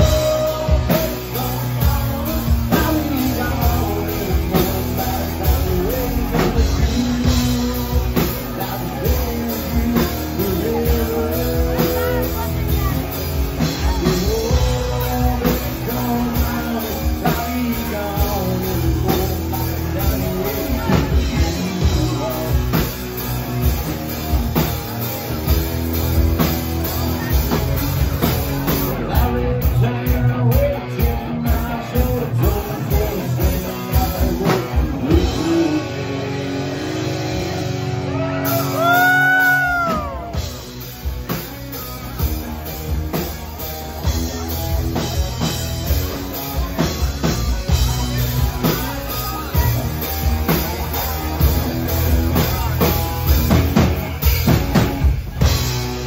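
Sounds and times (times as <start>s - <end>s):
man singing: 0.0s - 55.6s
drum kit: 0.0s - 56.0s
electric guitars: 0.0s - 56.0s.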